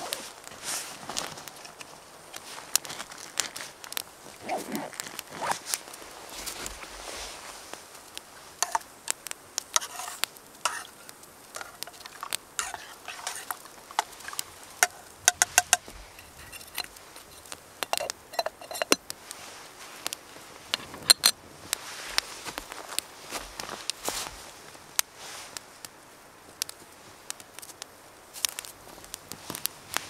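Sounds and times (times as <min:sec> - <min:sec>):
waterproof jacket rustling: 0:00.0 - 0:07.8, 0:19.2 - 0:20.7
snow crunching: 0:00.0 - 0:08.9, 0:21.6 - 0:24.6
metal spoon clinking in pot: 0:08.6 - 0:08.8, 0:11.6 - 0:19.0
pot lid clinking: 0:08.6 - 0:08.8, 0:11.6 - 0:19.0.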